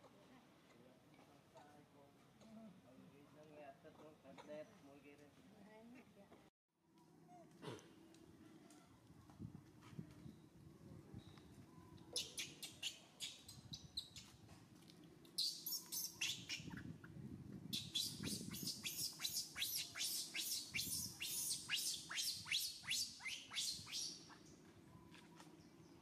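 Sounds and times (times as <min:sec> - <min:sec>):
baby monkey squealing: 0:15.4 - 0:16.8, 0:17.8 - 0:24.3.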